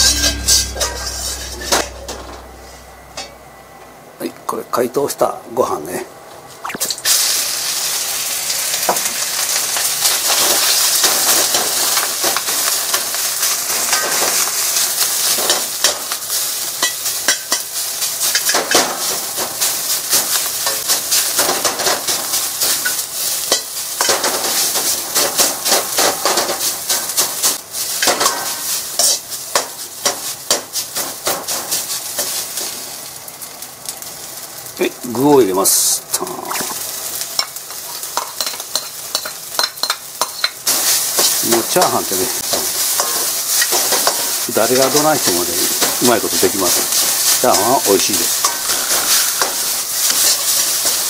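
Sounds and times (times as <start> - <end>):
metal ladle scraping a wok: 0.0 - 3.4
rice sizzling in a wok: 0.0 - 3.5, 6.4 - 51.0.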